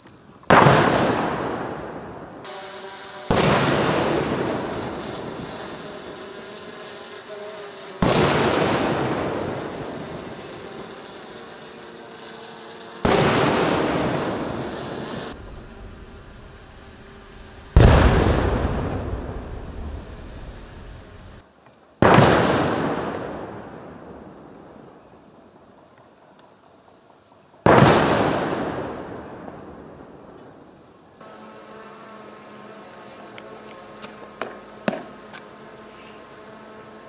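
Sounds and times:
artillery gun booms: 0:17.8 - 0:19.9.

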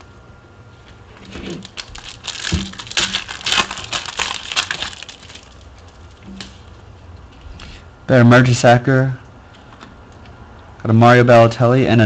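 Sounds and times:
foil wrapper crinkling: 0:01.2 - 0:06.8.

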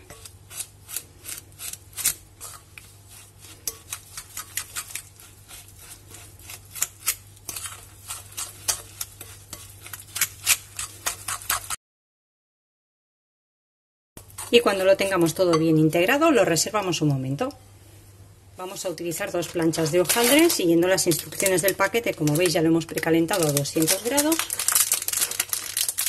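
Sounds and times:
fork scraping glass bowl: 0:00.0 - 0:11.8.

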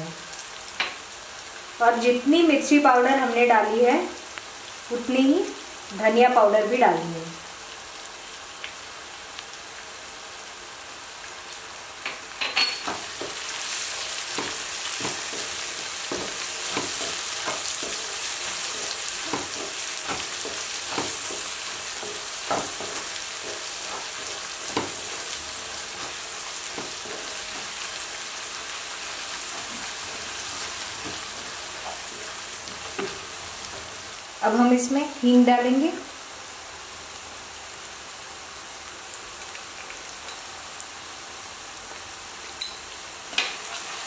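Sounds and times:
vegetables sizzling in oil: 0:00.0 - 0:44.0
wooden spatula scraping a pan: 0:12.9 - 0:28.0, 0:29.1 - 0:34.0.

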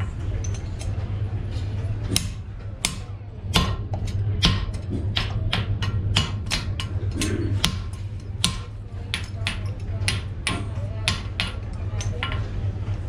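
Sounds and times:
hammer striking chisel on steel: 0:02.1 - 0:12.4.

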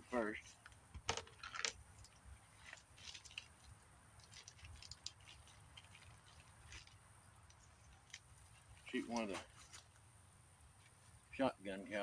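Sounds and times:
gear clicking and rustling: 0:00.4 - 0:09.9.

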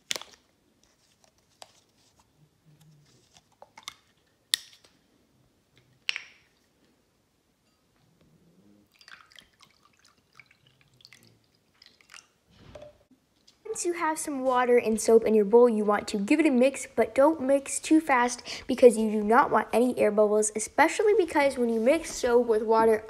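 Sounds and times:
water pouring into glass bowl: 0:08.9 - 0:12.4.

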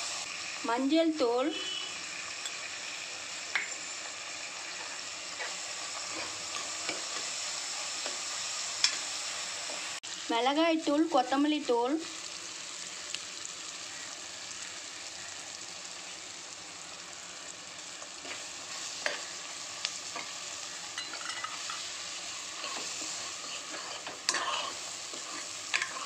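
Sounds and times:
vegetables sizzling in oil: 0:00.0 - 0:26.0
ladle scraping and clinking pan: 0:21.0 - 0:21.9.

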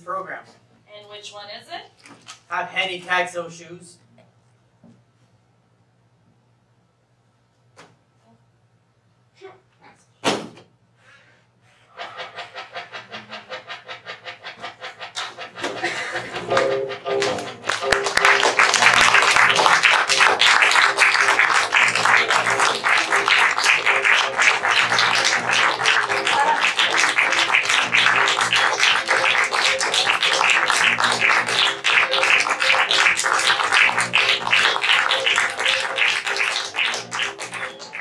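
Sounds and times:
background music: 0:12.1 - 0:38.0
audience applauding: 0:15.0 - 0:38.0.

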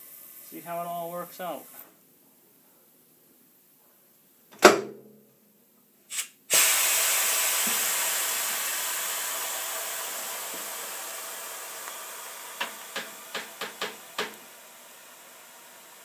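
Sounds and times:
loud air hiss: 0:06.1 - 0:16.0.

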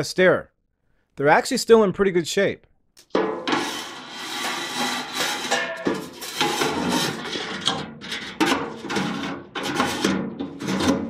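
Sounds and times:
metal parts clattering and scraping: 0:03.0 - 0:11.0.

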